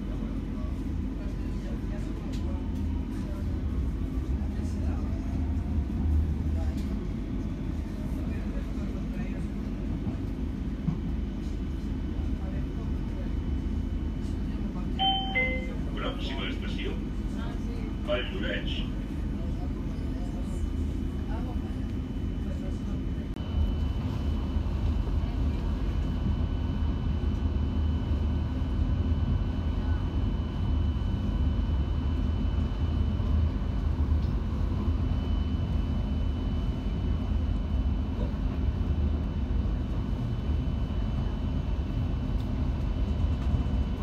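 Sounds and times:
train wheels rumbling on rail: 0.0 - 28.4.

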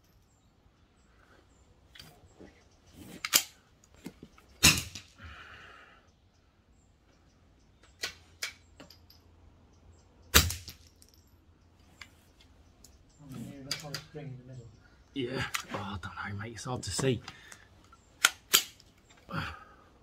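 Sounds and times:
metallic clicks of rifle action: 3.2 - 5.1, 7.8 - 9.2, 13.6 - 14.2, 17.3 - 19.3
rifle shots cracking: 4.6 - 5.0.

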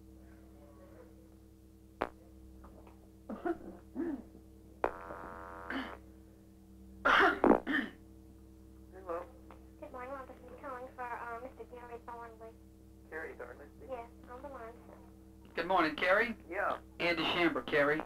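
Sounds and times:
electrical hum on phone line: 0.0 - 18.0
person coughing: 3.3 - 4.3, 5.7 - 6.0, 7.0 - 8.0.

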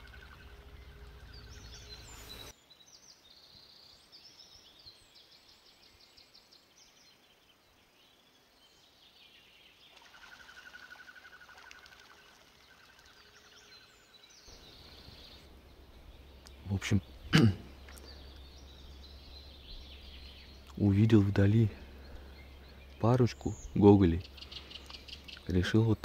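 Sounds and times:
small birds chirping: 0.0 - 26.0
low microphone rumble: 14.5 - 26.0.

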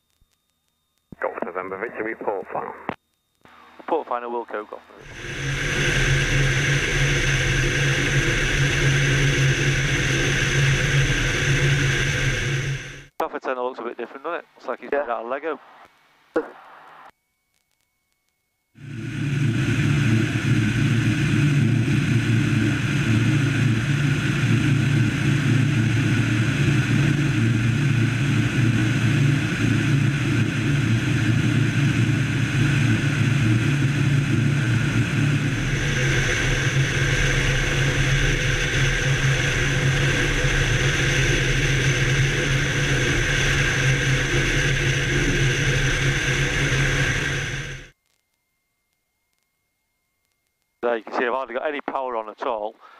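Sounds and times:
airplane engine and propeller droning: 1.2 - 13.1, 18.8 - 47.9
rush of air: 5.0 - 13.1, 18.8 - 47.9.

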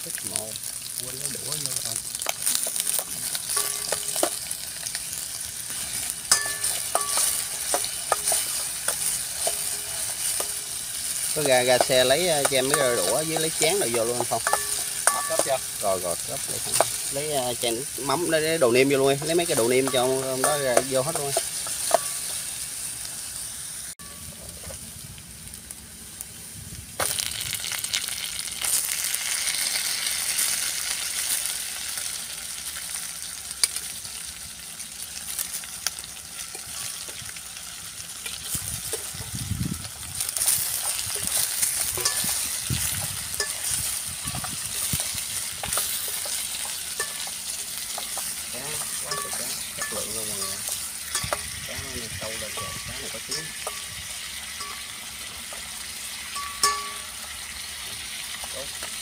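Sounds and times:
food sizzling in oil: 0.0 - 59.0
metal spoon clinking and scraping: 2.2 - 15.8, 19.0 - 22.5, 40.4 - 51.6, 56.3 - 57.2.

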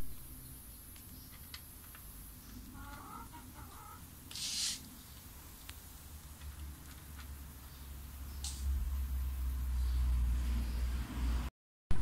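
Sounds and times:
bird chirping: 0.0 - 5.4, 7.5 - 11.5
short hiss: 4.3 - 4.9.

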